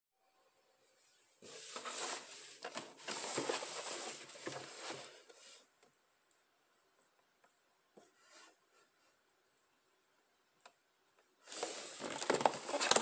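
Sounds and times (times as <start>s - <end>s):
cardboard box rustling and scraping: 1.5s - 5.6s.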